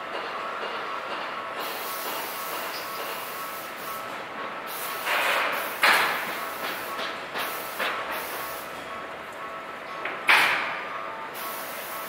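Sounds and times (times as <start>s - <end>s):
steady background noise: 0.0s - 12.0s
compressed air hisses: 1.6s - 4.1s, 4.7s - 8.7s, 11.4s - 12.0s.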